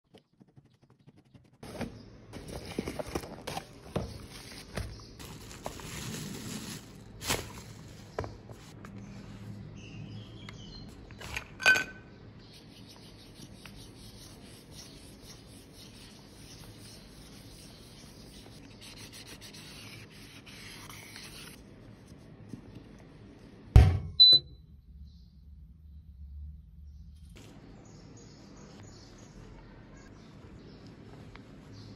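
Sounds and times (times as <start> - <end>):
loud thumps: 23.8 - 24.2.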